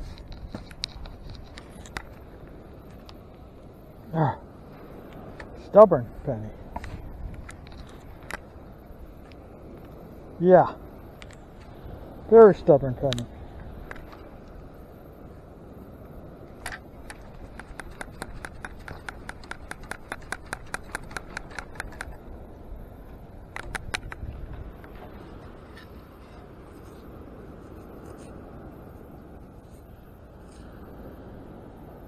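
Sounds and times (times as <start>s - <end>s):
low steady background noise: 0.0s - 32.0s
quick sharp clicks: 16.6s - 22.2s, 23.5s - 24.2s.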